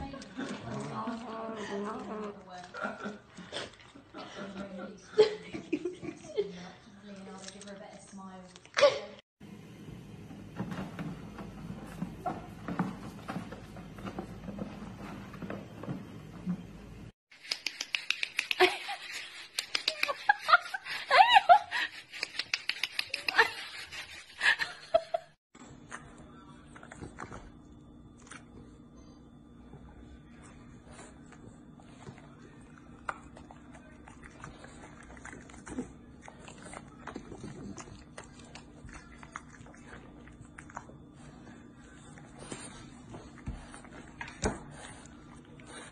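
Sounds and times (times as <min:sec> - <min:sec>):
puppy licking and smacking: 0:33.0 - 0:41.2.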